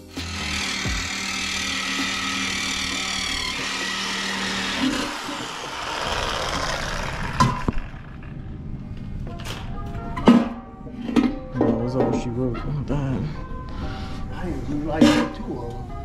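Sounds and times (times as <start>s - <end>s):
reciprocating saw cutting metal: 0.0s - 8.3s.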